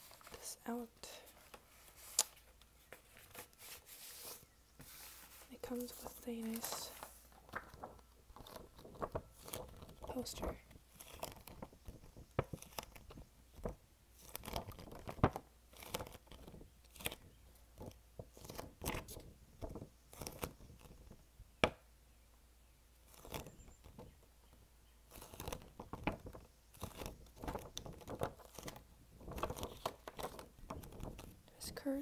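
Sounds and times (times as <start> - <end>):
paper poster rustling and crinkling: 0.0 - 21.2, 25.1 - 32.0.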